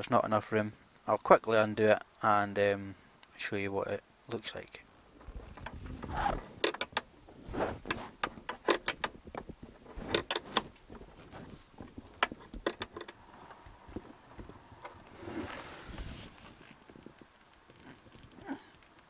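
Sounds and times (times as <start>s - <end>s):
spanner clicking on metal nut: 8.2s - 9.1s.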